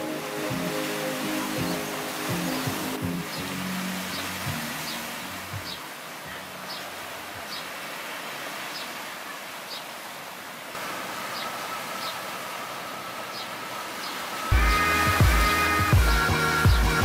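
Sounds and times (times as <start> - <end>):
ocean surf washing on beach: 0.0 - 16.8
steady high tone: 12.5 - 17.0
loud music: 14.5 - 17.0.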